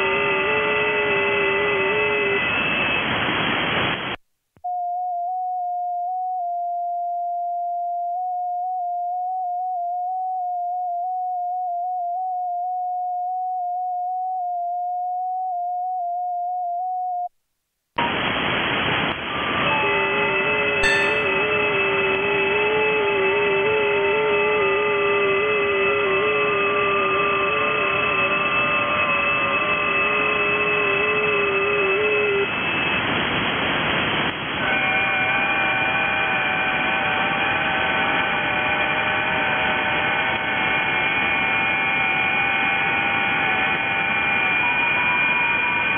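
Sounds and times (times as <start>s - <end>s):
receiver hiss: 1.7s - 4.2s, 18.0s - 19.7s, 30.8s - 35.0s.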